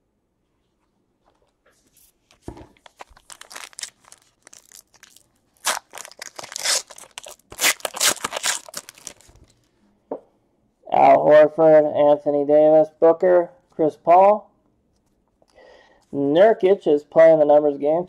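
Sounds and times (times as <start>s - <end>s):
foil wrapper tearing and crinkling: 2.8s - 9.5s.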